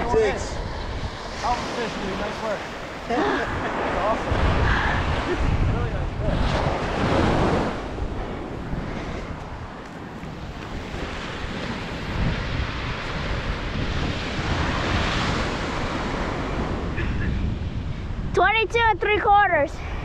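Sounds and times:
seawater rushing: 0.0 - 20.0
wind buffeting microphone: 0.0 - 20.0.

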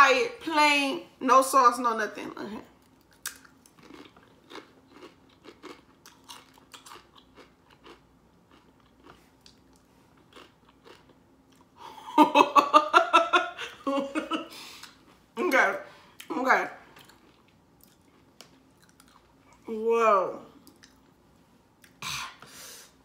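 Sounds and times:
person chewing crunchy chip: 2.9 - 11.8, 17.0 - 19.6
woman laughing loudly: 11.8 - 14.5.

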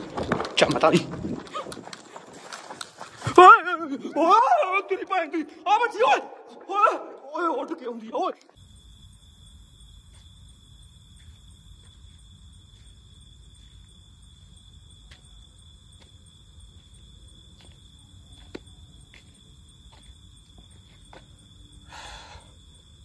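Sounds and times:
footsteps on gritty road: 0.0 - 4.1, 10.0 - 21.8
crickets chirring: 0.0 - 23.0.

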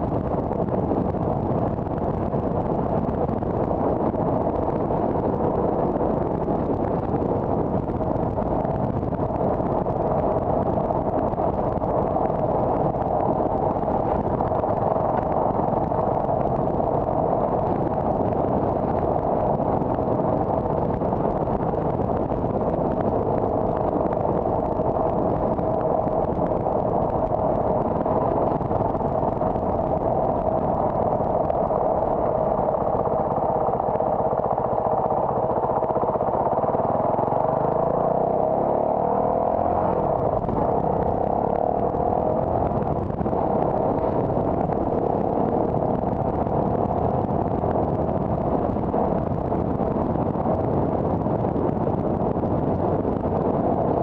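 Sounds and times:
faint constant hum: 0.0 - 39.0
car road and engine noise: 0.0 - 54.0.

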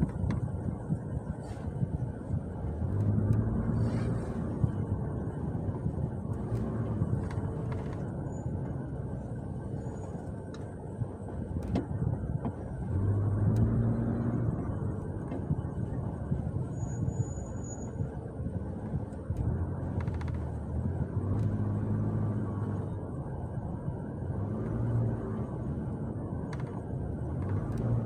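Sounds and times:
car engine and road noise: 0.0 - 28.0.

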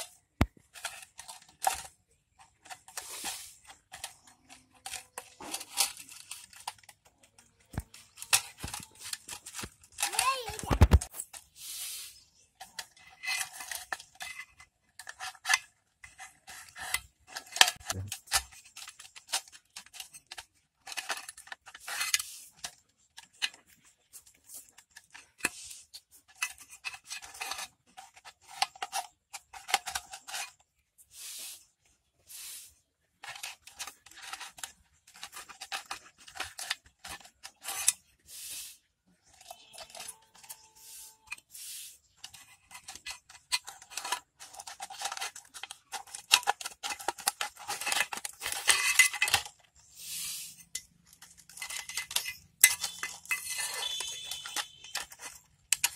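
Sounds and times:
scissors cutting plastic bottle: 39.3 - 49.6, 50.6 - 55.9.

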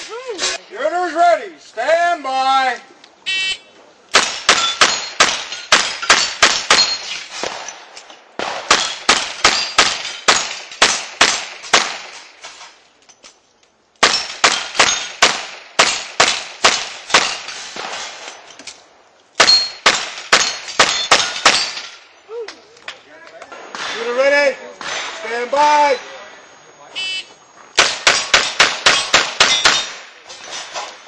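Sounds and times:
steel plates ringing: 19.4 - 19.8.

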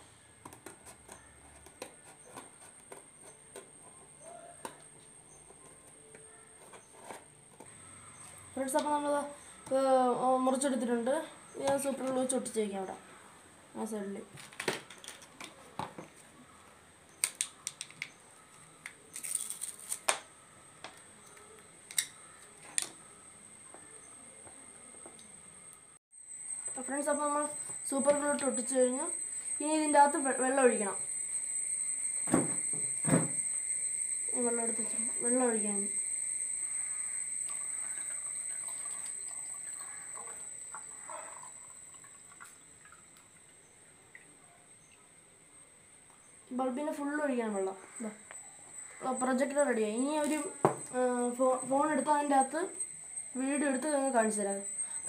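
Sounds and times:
plastic packaging crinkle: 19.1 - 20.2
high-pitched whine: 20.6 - 55.0
water trickling into glass bulb: 34.4 - 43.6.

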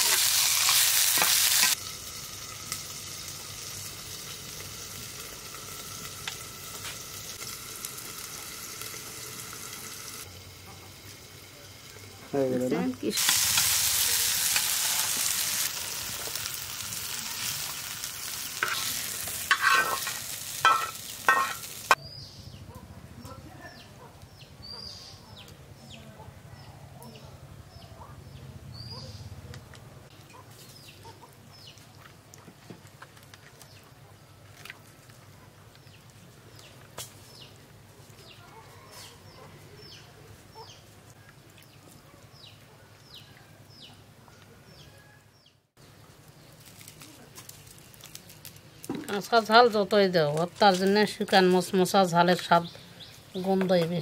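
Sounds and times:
food sizzling in hot oil: 0.0 - 22.0
birds chirping: 12.0 - 32.0, 35.8 - 46.6, 50.9 - 54.0.

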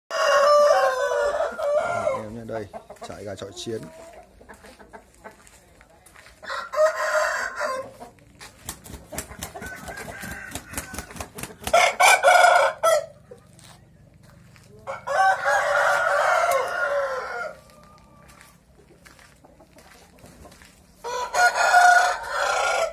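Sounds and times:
roosters crowing: 0.1 - 2.7, 6.3 - 8.2, 9.2 - 19.9, 20.5 - 22.9.

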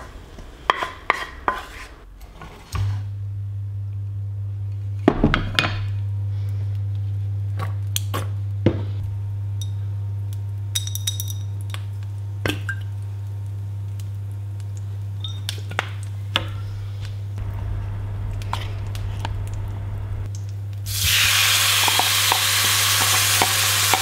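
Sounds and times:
steady low hum: 8.4 - 10.7, 16.0 - 21.0.

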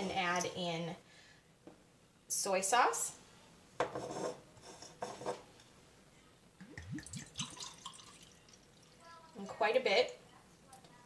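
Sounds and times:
liquid glugging into cup: 6.6 - 8.9.

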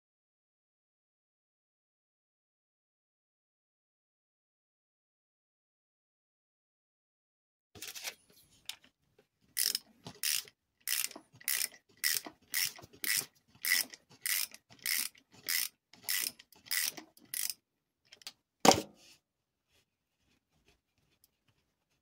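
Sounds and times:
ratchet wrench clicking: 9.6 - 17.6.

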